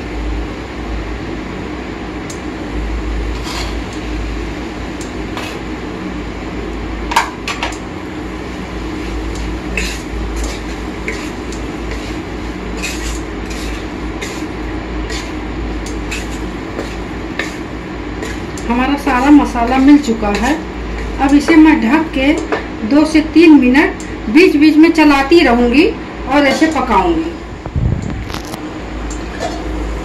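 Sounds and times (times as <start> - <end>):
wooden spatula scraping metal pan: 9.8 - 15.4, 16.0 - 17.6.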